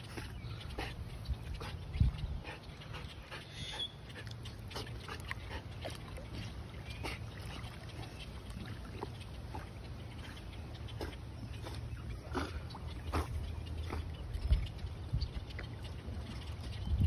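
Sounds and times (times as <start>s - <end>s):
dog splashing in water: 4.2s - 14.5s.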